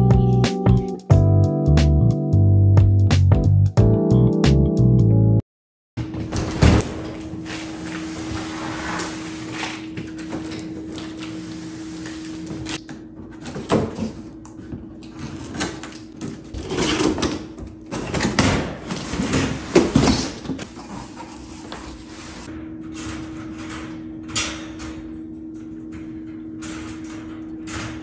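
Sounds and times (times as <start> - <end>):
cardboard scraping: 7.4 - 9.9
metal wire panels rattling: 22.7 - 28.0.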